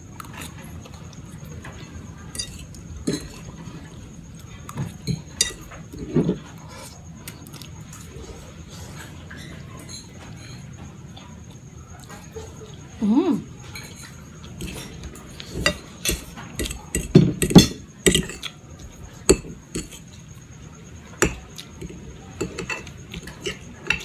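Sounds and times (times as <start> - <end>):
fork scraping ceramic plate: 2.4 - 3.5, 13.7 - 18.5, 19.2 - 20.2, 21.2 - 24.0.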